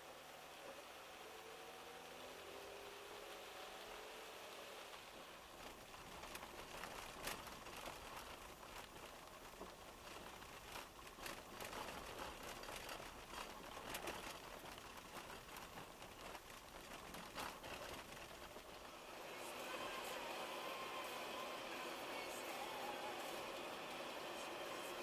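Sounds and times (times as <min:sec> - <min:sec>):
faint clicks and crackles: 0:05.4 - 0:18.9.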